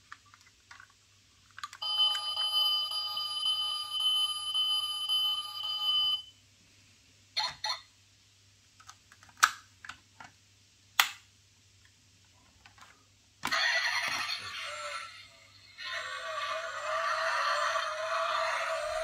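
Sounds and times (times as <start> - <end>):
loud noisy toy sound: 13.4 - 19.0.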